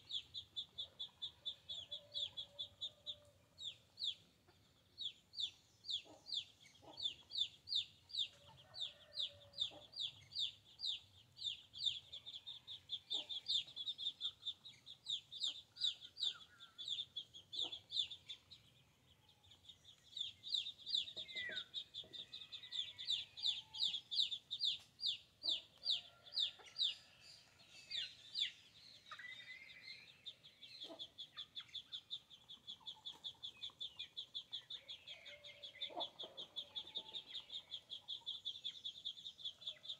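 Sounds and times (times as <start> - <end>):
bird peeping: 5.0 - 18.6, 19.5 - 27.0, 27.8 - 39.9
chickens clucking: 20.9 - 22.6, 30.8 - 38.7.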